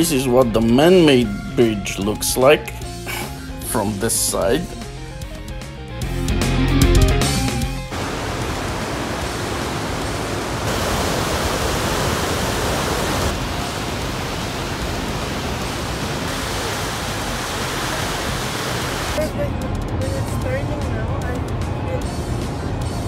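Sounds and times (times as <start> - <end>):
river rushing over rocks: 7.9 - 19.2.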